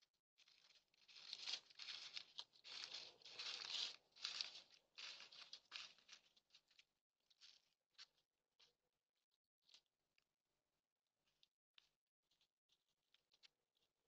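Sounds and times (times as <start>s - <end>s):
hooves crunching on frozen gravel: 1.1s - 6.3s.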